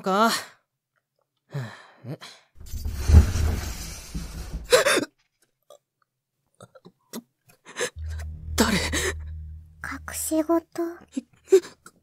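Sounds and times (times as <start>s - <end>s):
sliding closet door rumbling: 2.6s - 4.7s.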